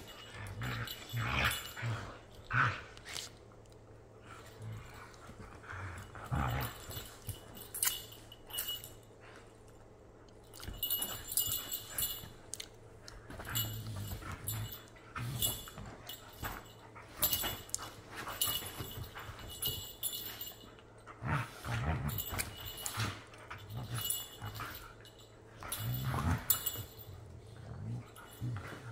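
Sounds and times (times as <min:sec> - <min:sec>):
dogs growling and whining: 0:00.0 - 0:03.0, 0:04.2 - 0:07.6, 0:18.4 - 0:28.9
dogs scuffling on cushions: 0:13.2 - 0:20.3.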